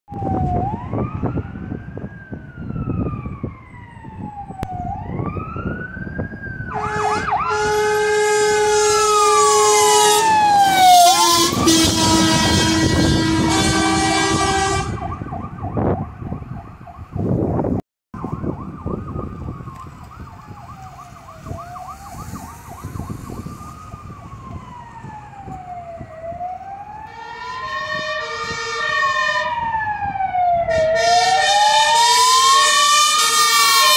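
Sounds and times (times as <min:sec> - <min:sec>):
electronic siren wailing: 0:00.1 - 0:17.4, 0:18.2 - 0:33.9
truck engine rumbling: 0:04.7 - 0:33.9
two-tone air horn blaring: 0:06.7 - 0:15.2, 0:27.1 - 0:29.5, 0:30.7 - 0:33.9.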